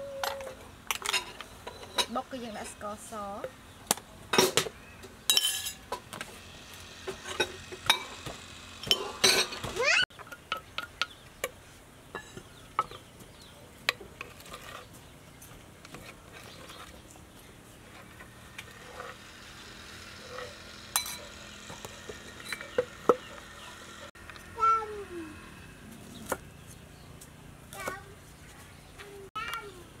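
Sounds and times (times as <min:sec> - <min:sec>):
bowls clinking: 0:05.3 - 0:06.0, 0:21.0 - 0:21.3
metal spoon scraping wooden mortar: 0:13.9 - 0:17.1, 0:17.8 - 0:19.2.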